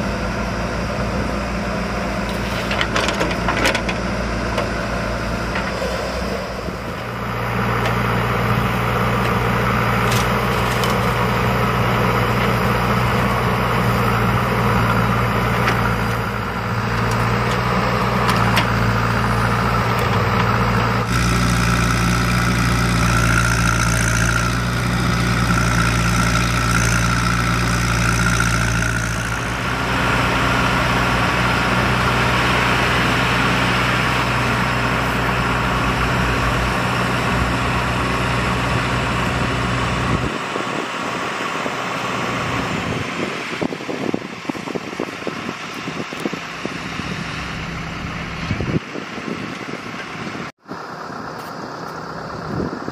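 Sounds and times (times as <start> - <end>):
diesel engines running: 0.0 - 52.9.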